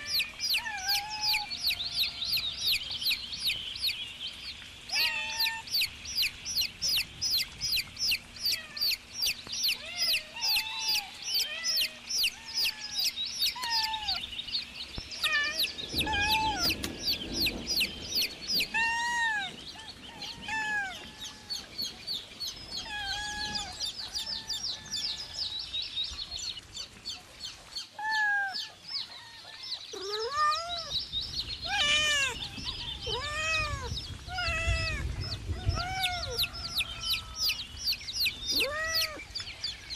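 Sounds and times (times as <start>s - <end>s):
chicks peeping: 0.0s - 27.9s, 28.6s - 39.8s
low rumble: 14.9s - 20.3s.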